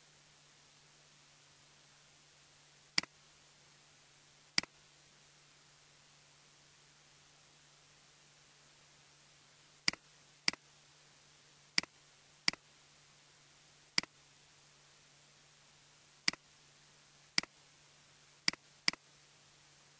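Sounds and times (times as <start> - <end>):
faint steady hum: 0.0 - 19.9
computer mouse clicking: 9.9 - 10.6, 18.5 - 19.0.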